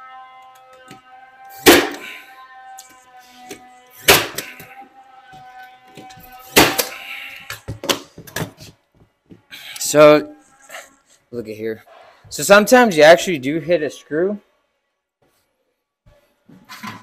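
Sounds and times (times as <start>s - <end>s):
pin nailer shots: 1.5s - 2.2s, 3.5s - 4.8s, 6.4s - 7.1s.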